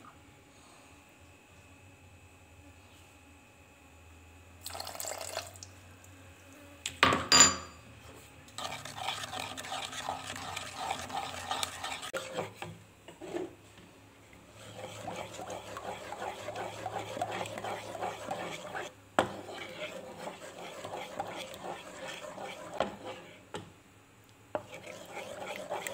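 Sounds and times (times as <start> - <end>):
sharp ringing clink: 7.3 - 7.8
wooden spatula scraping pot: 8.6 - 13.6, 14.5 - 23.5, 24.6 - 25.9.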